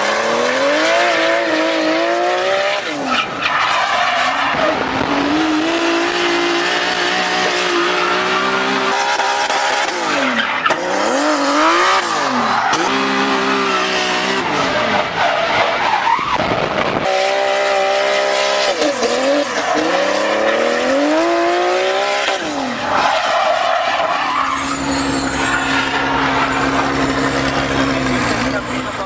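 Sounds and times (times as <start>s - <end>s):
car engine revving: 0.0s - 29.0s
tyres squealing: 22.7s - 29.0s.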